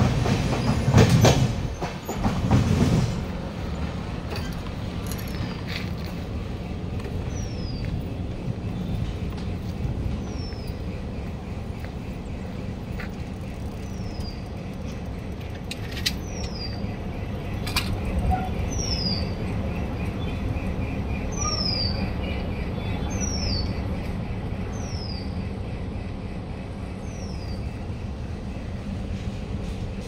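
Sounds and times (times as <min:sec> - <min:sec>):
train rumbling on tracks: 0:00.0 - 0:30.0.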